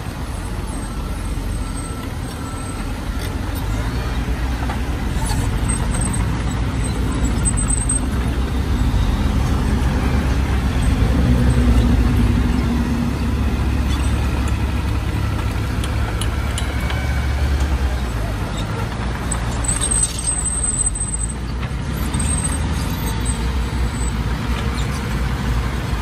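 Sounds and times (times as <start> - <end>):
diesel machinery engine rumble: 0.0 - 26.0.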